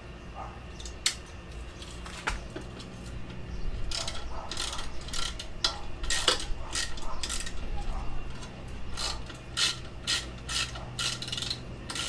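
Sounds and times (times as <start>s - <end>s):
small metal clicks and rattling: 0.7s - 12.0s.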